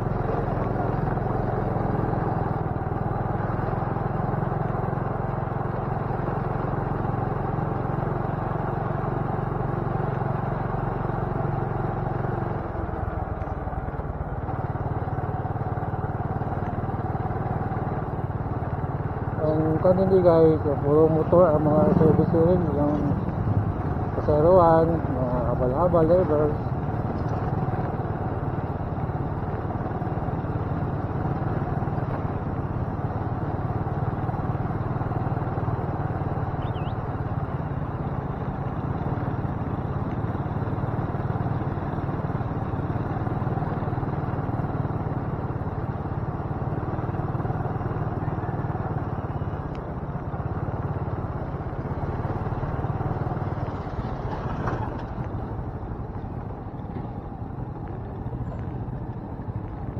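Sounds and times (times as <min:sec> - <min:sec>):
motorcycle engine cruising: 0:00.0 - 0:59.9
road and wind noise: 0:00.0 - 0:59.9.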